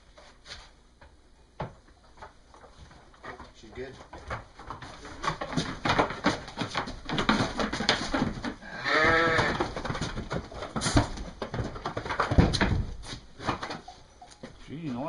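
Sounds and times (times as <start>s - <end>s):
scuffling and knocks in pen: 0.0s - 15.0s
sheep bleating: 8.6s - 9.6s.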